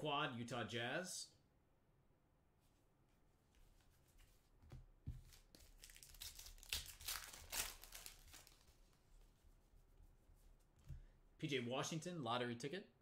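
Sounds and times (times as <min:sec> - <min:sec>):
foil wrapper tearing and crinkling: 0:05.6 - 0:08.8.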